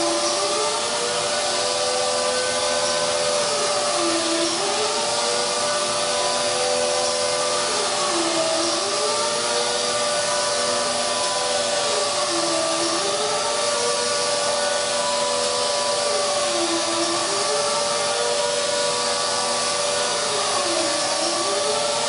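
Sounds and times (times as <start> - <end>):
air sander running: 0.0 - 22.0.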